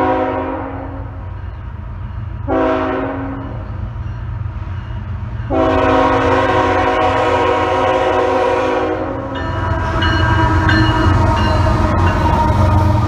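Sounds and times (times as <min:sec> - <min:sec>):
locomotive air horn blasts: 0:00.0 - 0:01.1, 0:02.5 - 0:03.6, 0:05.5 - 0:11.8
locomotive engines rumbling: 0:00.0 - 0:13.0.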